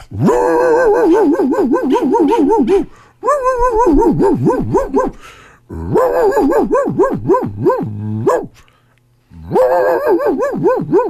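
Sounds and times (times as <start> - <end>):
man imitating a dog howling: 0.1 - 8.5, 9.4 - 11.0
breathy breath: 2.8 - 3.2, 5.1 - 5.8.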